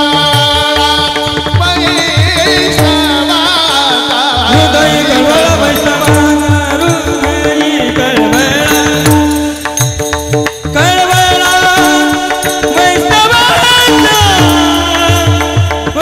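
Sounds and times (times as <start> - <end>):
man singing devotional tune: 0.0 - 16.0
hand cymbals clashing: 8.6 - 16.0.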